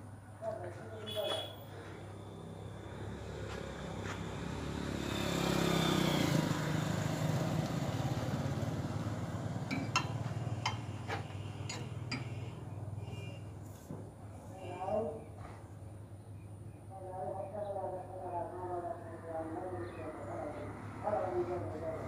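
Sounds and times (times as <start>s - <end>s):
vehicle engine passing by: 1.7s - 13.2s, 18.9s - 22.0s.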